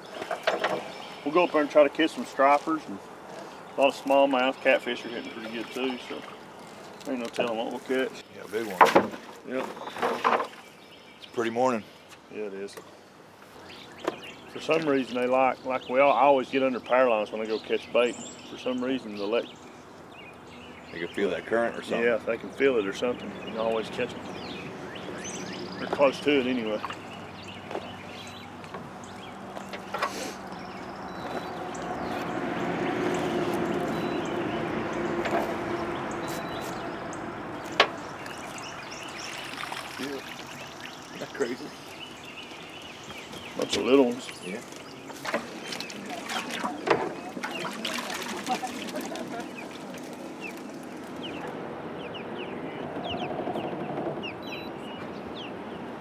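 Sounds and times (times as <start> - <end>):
birds chirping: 0.0 - 56.0
boat motor humming: 20.1 - 55.8
rushing water: 37.8 - 51.6.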